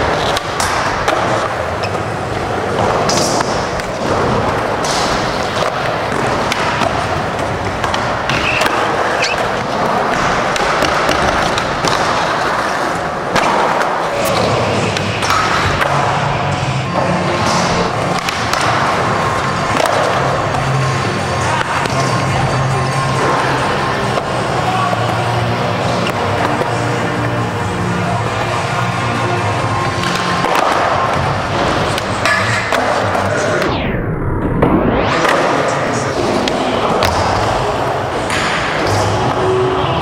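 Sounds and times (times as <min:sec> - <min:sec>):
skateboard clacks: 0:00.0 - 0:16.3
skateboard wheels rolling on concrete: 0:00.0 - 0:33.7
music: 0:00.0 - 0:40.0.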